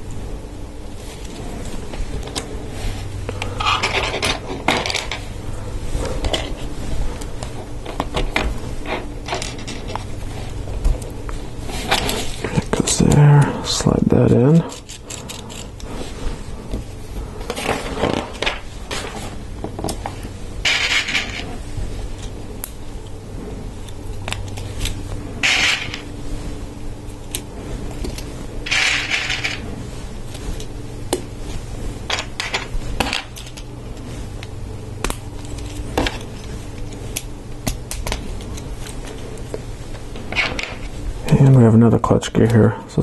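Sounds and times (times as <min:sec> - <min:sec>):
plastic parts scraping: 0:03.3 - 0:05.2, 0:17.4 - 0:21.6, 0:24.3 - 0:26.0, 0:28.0 - 0:29.6.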